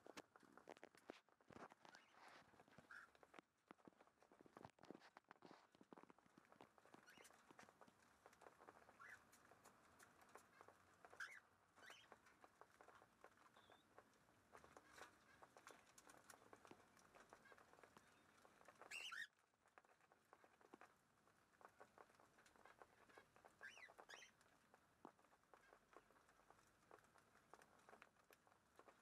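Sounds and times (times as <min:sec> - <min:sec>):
birds pecking seed clicks: 0:06.0 - 0:29.0.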